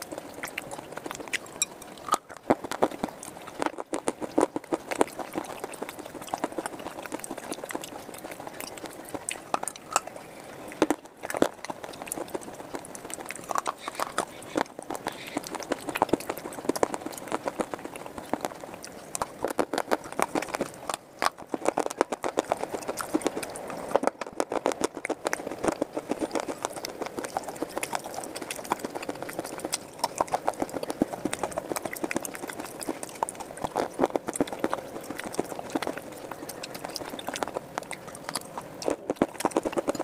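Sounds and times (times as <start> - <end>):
crunching brittle slate: 10.8 - 40.0.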